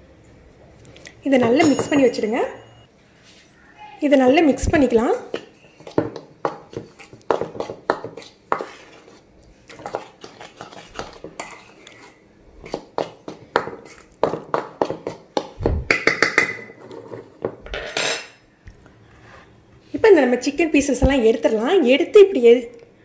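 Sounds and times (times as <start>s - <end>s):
metal spoon scraping a bowl: 6.7s - 13.1s.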